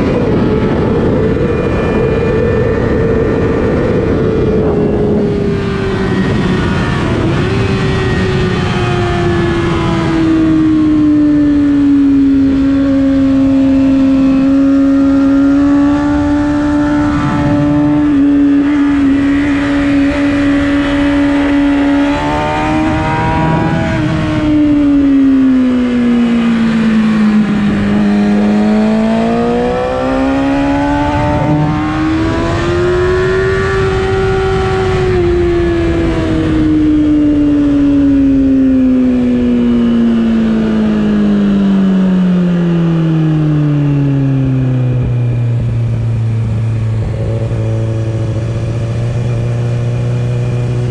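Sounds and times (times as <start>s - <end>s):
motorcycle engine: 0.0s - 50.9s
wind rush: 0.0s - 50.9s.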